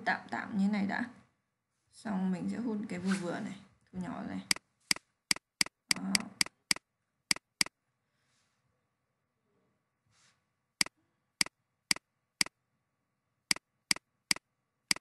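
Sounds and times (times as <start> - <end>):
computer mouse clicks: 4.5 - 7.7, 13.5 - 15.0.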